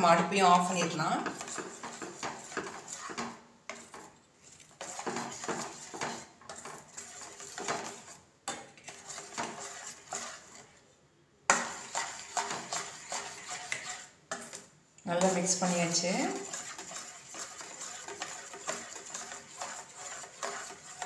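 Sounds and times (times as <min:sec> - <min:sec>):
metal spoon scraping steel bowl: 0:00.0 - 0:10.8, 0:11.5 - 0:21.0.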